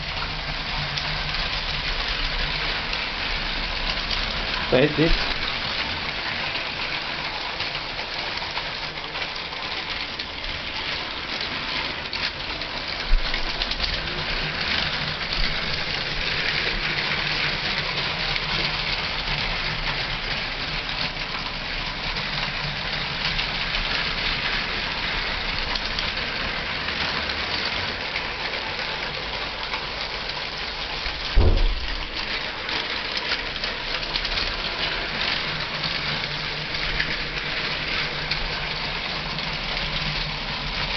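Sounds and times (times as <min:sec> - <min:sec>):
toy trains whirring on track: 0:00.0 - 0:40.9
low thump: 0:31.4 - 0:32.1.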